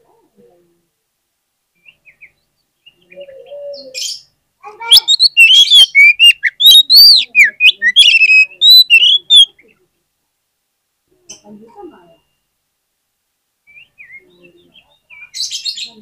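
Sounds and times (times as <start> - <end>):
faint bird calls: 1.7 - 9.9
bird singing whistled notes: 1.8 - 4.0, 4.9 - 9.5, 13.7 - 16.0.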